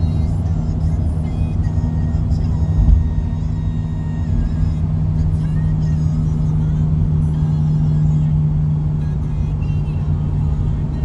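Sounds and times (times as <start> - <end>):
engine and tyre drone in car: 0.0 - 11.0.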